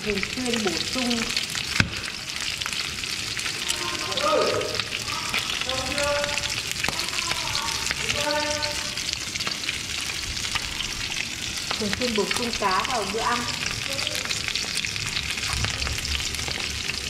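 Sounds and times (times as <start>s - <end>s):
fish sizzling in hot oil: 0.0s - 17.0s.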